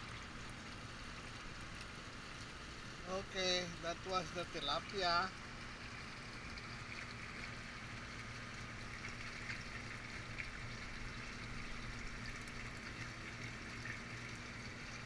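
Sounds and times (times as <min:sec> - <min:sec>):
water splashing and bubbling: 0:00.0 - 0:15.0.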